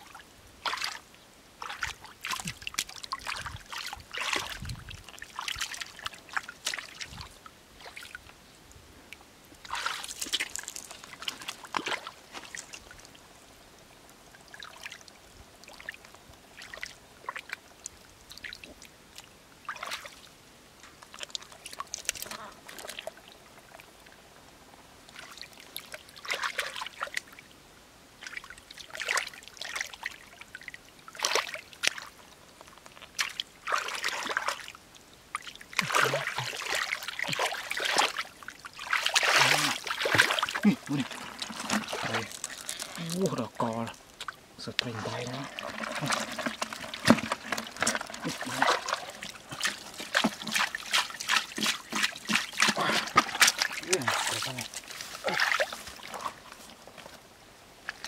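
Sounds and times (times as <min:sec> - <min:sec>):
hands splashing in muddy water: 0:09.7 - 0:12.8, 0:35.8 - 0:38.2, 0:38.8 - 0:43.2, 0:44.9 - 0:56.6.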